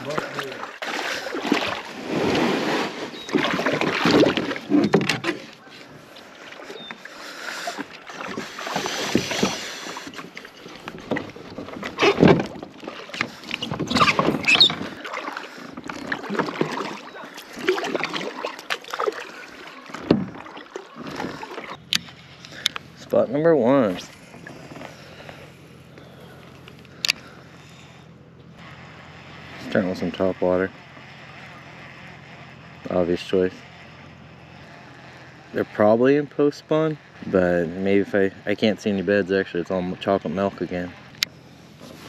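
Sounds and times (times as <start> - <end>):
water splashing around kayak hull: 0.0 - 27.9.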